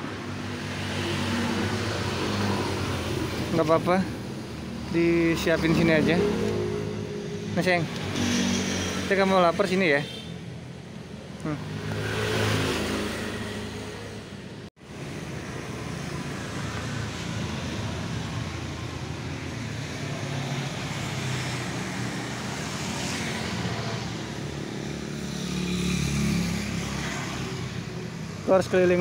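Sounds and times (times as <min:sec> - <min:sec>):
passing vehicles rushing: 0:00.0 - 0:29.0.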